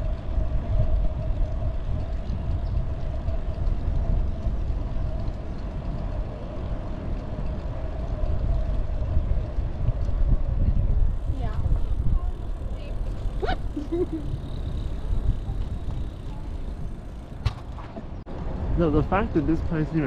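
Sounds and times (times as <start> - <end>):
bicycle tyres rolling: 0.0 - 20.0
wind rumbling on microphone: 0.0 - 20.0.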